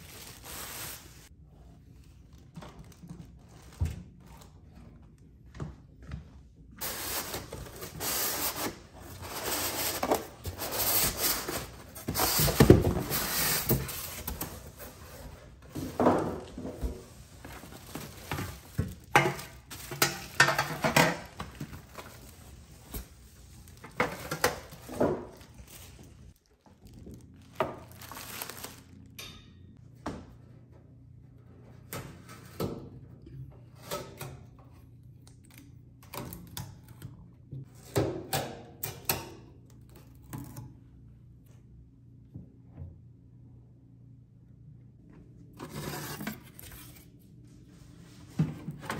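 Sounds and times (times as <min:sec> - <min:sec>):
packaging rustling and crinkling: 0:00.0 - 0:01.3, 0:06.8 - 0:29.1.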